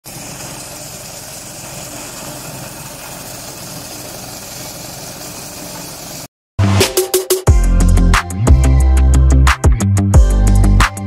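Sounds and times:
small stationary engine running: 0.0s - 6.3s.

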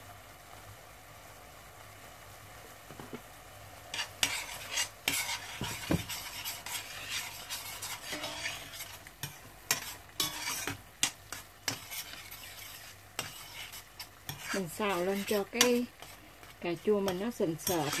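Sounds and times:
low sizzle: 0.0s - 18.0s
spoon scraping and clinking pot: 4.0s - 18.0s.

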